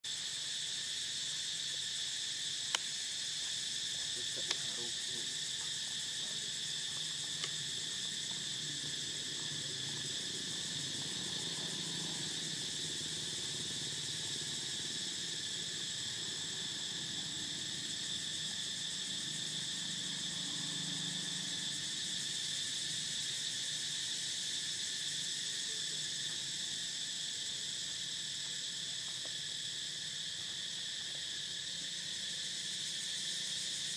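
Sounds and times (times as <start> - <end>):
high-pitched insect chorus: 0.0 - 33.9.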